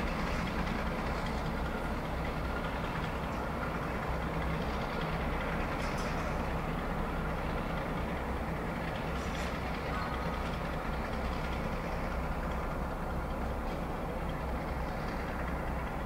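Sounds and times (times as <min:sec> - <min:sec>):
diesel locomotive engine droning: 0:00.0 - 0:16.0.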